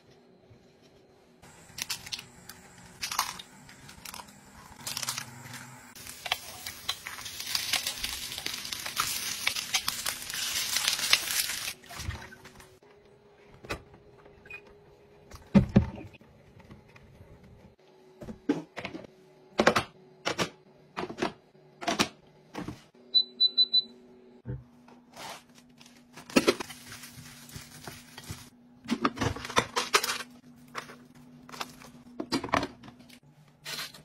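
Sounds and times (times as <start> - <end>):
eggs sizzling in oil: 1.5 - 11.8.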